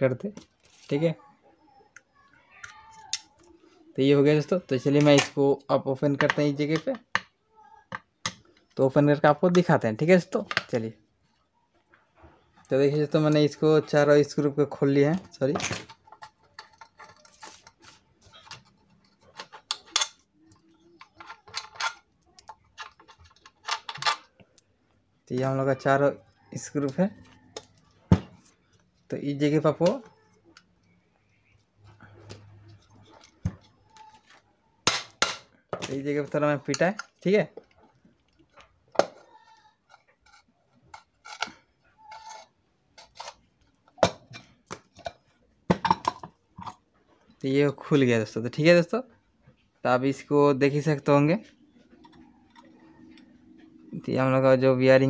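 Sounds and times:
small metal screws clinking: 0:15.9 - 0:24.7.

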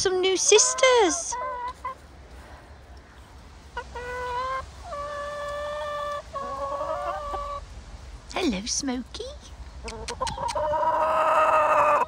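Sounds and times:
hens clucking: 0:00.0 - 0:07.7, 0:09.7 - 0:12.0
hen drawn-out calls: 0:00.2 - 0:02.0, 0:03.8 - 0:07.6, 0:09.9 - 0:12.0.

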